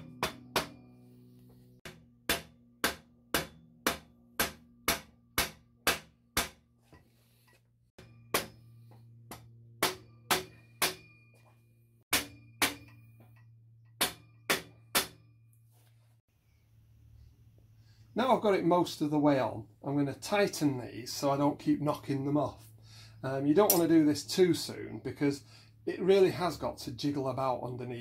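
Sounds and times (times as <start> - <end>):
metal pipes ringing: 0.0 - 6.0, 6.9 - 15.6, 20.4 - 25.0.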